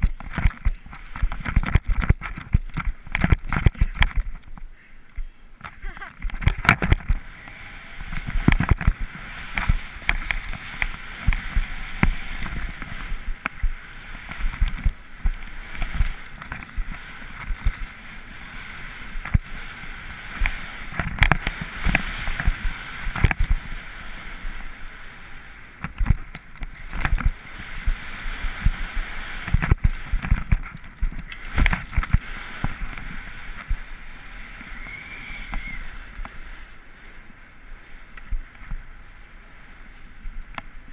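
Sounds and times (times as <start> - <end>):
camera knocks and thumps: 0.0 - 4.3
skis scraping over snow: 0.0 - 4.6, 5.8 - 40.9.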